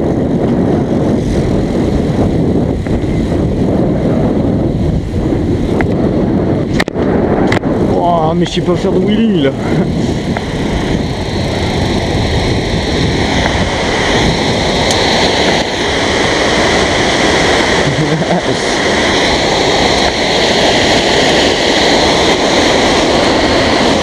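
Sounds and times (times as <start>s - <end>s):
bicycle wind and tyre noise: 0.0s - 24.0s.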